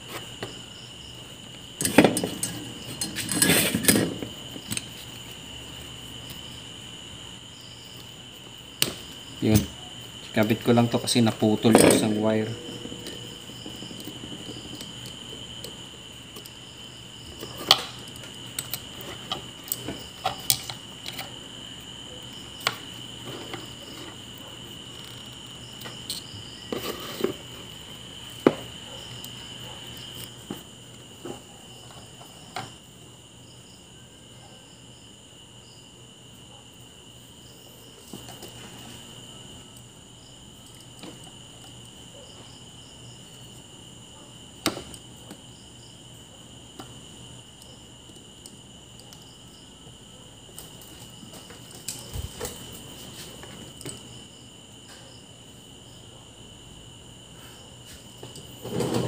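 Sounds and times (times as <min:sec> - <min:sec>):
small tools clicking and tapping: 0:01.8 - 0:04.0, 0:04.6 - 0:05.1, 0:17.4 - 0:21.3, 0:24.9 - 0:27.4.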